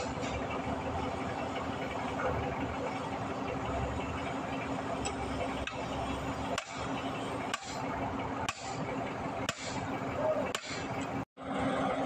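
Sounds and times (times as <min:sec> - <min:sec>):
hammer striking steel bar: 0:06.5 - 0:06.8, 0:07.5 - 0:07.8, 0:08.5 - 0:08.8, 0:09.5 - 0:09.8, 0:10.5 - 0:10.9.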